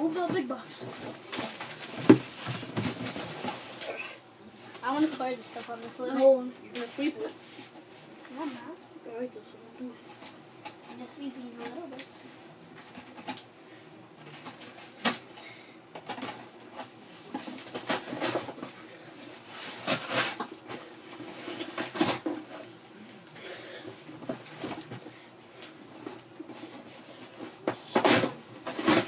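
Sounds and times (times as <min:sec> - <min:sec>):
broom sweeping packing bits: 0:16.9 - 0:20.5.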